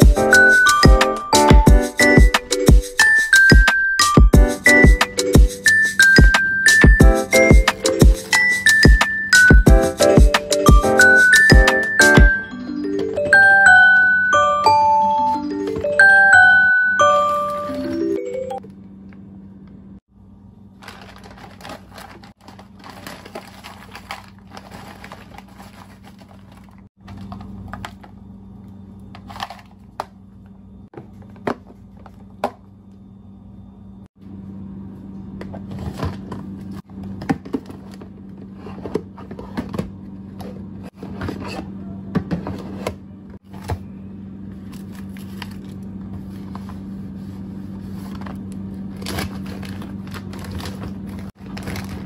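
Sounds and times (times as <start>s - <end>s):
plastic containers knocking and scraping: 37.1s - 43.9s.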